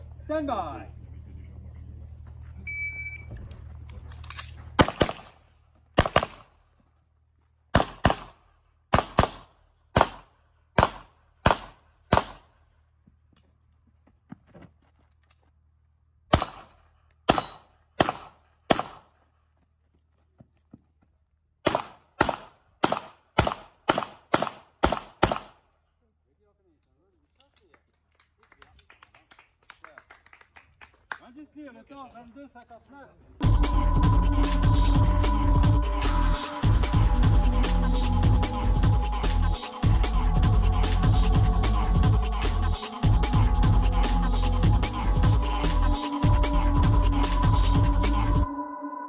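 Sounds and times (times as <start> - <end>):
electronic shot-timer beep: 2.7 - 3.3
pistol shots in quick pairs: 4.8 - 5.4, 6.0 - 6.5, 7.7 - 12.5, 17.3 - 19.1, 21.6 - 25.6.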